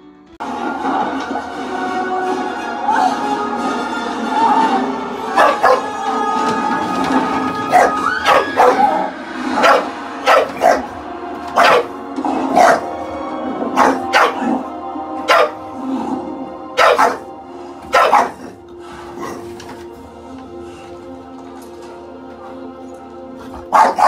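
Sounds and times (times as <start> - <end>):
film music from television: 0.0 - 24.0
dog barking: 5.3 - 5.9, 7.7 - 10.9, 11.6 - 13.0, 13.8 - 14.6, 15.3 - 15.6, 16.8 - 17.3, 17.9 - 18.6, 23.6 - 24.0.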